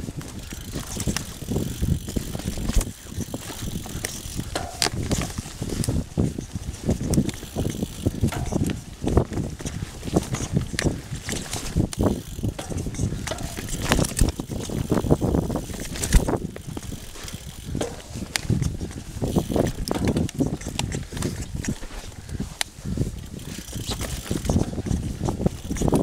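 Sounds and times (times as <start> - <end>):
bike rattling over bumps: 0.0 - 26.0
sharp clicks and knocks: 0.5 - 21.7.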